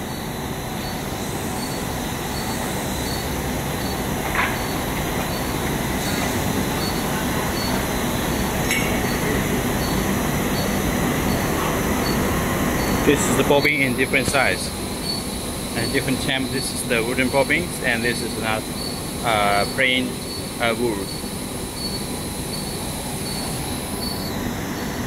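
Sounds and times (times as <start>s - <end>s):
machinery drone: 0.0s - 25.0s.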